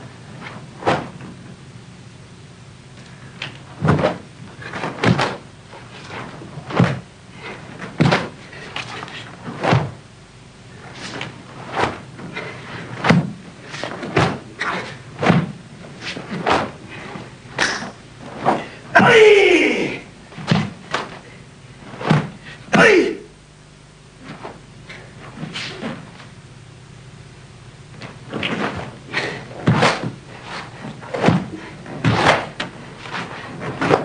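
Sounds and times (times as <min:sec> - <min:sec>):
karate strikes and steps: 0:00.4 - 0:01.4, 0:03.8 - 0:10.0, 0:10.8 - 0:21.2, 0:21.8 - 0:23.1, 0:28.0 - 0:34.0.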